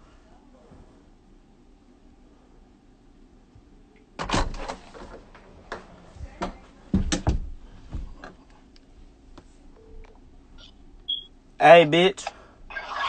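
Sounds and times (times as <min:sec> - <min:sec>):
door knocks and bangs: 0:06.9 - 0:07.6.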